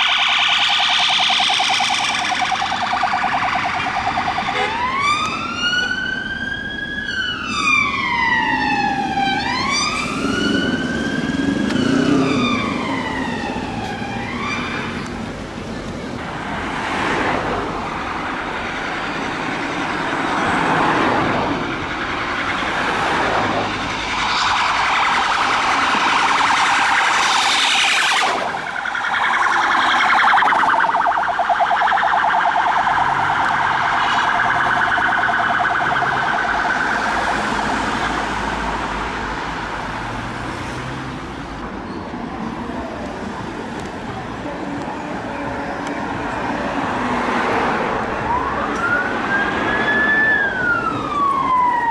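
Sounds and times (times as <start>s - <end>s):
fast-warbling siren: 0.0s - 15.0s, 18.1s - 38.8s, 48.2s - 51.9s
police sirens wailing: 0.0s - 51.9s.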